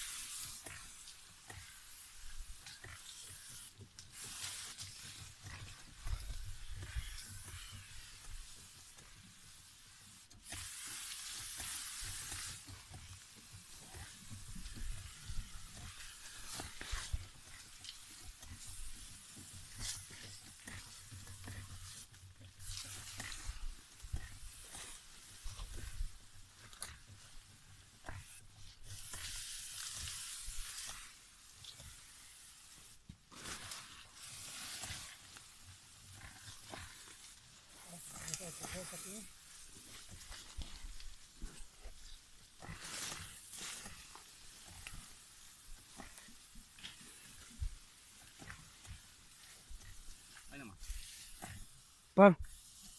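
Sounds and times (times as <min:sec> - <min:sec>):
sprayer nozzle hissing: 0:00.0 - 0:52.9
leaves and twigs rustling: 0:28.8 - 0:51.8.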